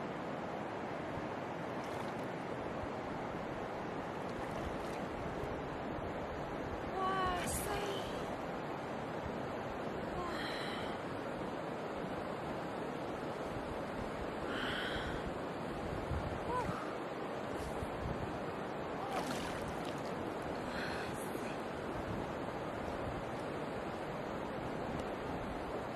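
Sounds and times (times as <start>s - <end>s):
rushing river water: 0.0s - 25.9s
water sloshing and splashing: 1.6s - 3.2s, 3.8s - 5.8s, 16.8s - 23.5s.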